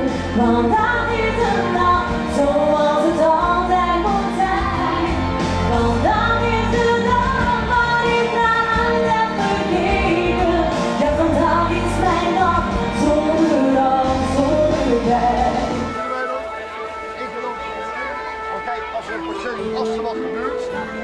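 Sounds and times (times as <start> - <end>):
woman singing into microphone: 0.0 - 16.0
instrumental accompaniment: 0.0 - 21.0.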